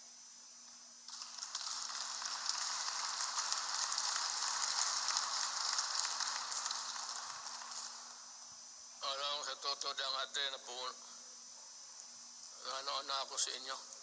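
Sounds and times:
audience applauding: 1.1s - 8.4s.

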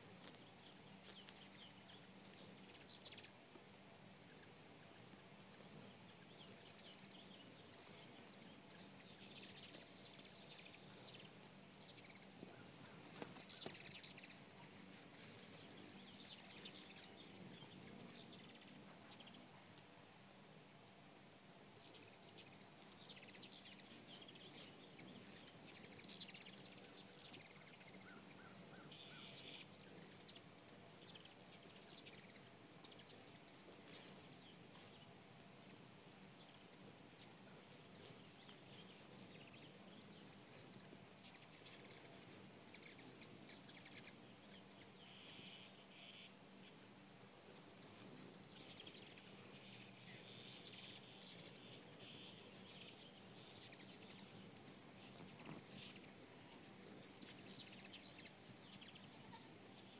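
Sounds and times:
hummingbirds chittering: 0.1s - 21.0s, 21.6s - 59.9s.

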